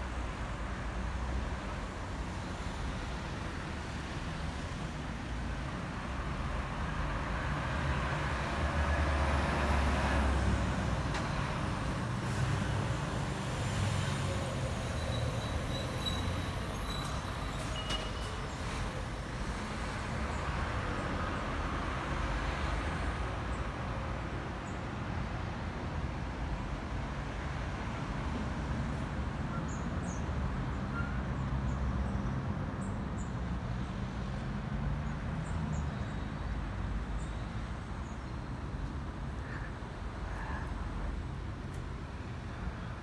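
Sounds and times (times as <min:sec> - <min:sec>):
town traffic rumble: 0:00.0 - 0:43.0.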